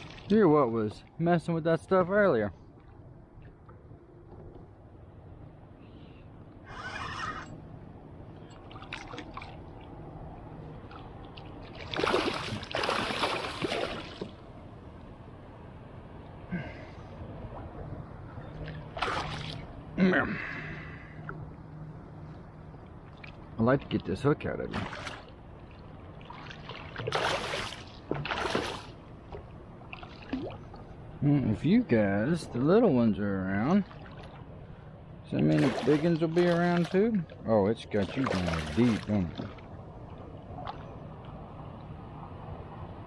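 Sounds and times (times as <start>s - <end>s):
gentle water noise: 0.0s - 43.0s
fish splashing: 10.9s - 14.4s, 18.7s - 19.7s, 26.2s - 29.0s.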